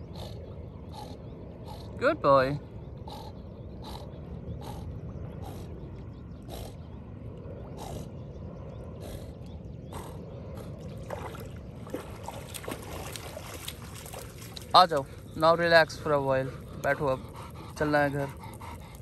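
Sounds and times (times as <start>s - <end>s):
low steady rumble: 0.0s - 19.0s
dog splashing through water: 10.9s - 15.1s
dog huffing breaths: 15.0s - 19.0s.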